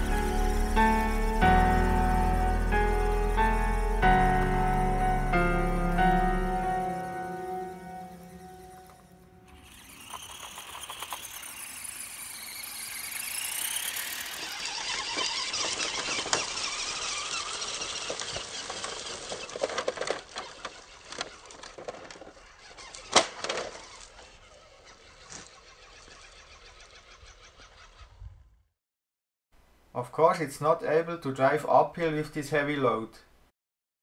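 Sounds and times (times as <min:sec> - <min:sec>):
toy truck electric motor whining: 0:00.0 - 0:28.7
tyres rustling over leaves and gravel: 0:13.2 - 0:25.5.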